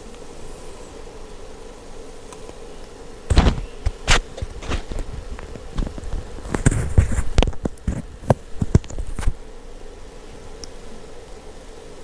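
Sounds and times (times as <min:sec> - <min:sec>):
match scratching hiss: 0:02.2 - 0:09.4.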